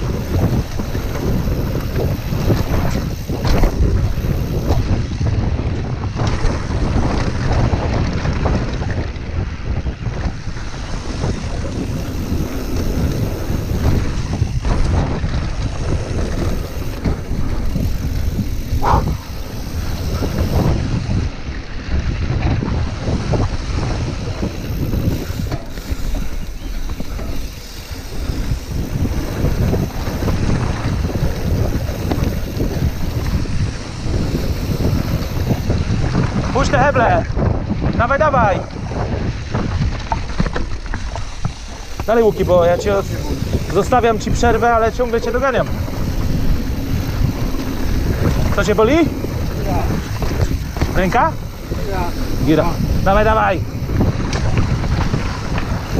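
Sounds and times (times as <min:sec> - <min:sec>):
bike rattling over bumps: 0:00.0 - 0:55.9
tyre noise on dirt trail: 0:00.0 - 0:55.9
wind buffeting microphone: 0:00.0 - 0:55.9.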